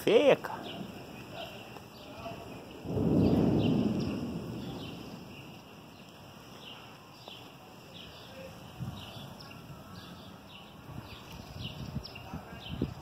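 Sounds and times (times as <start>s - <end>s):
birds chirping: 0.0s - 13.0s
thunder rumbling: 0.6s - 6.7s.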